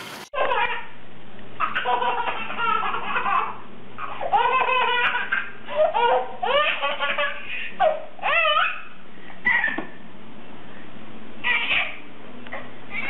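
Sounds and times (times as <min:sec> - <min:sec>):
baby laughing: 0:00.4 - 0:01.0, 0:01.6 - 0:10.0, 0:11.4 - 0:12.0.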